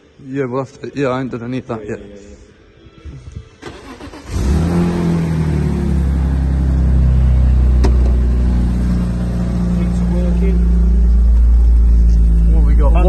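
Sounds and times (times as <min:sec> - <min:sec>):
car engine starting and idling: 0:03.6 - 0:13.0.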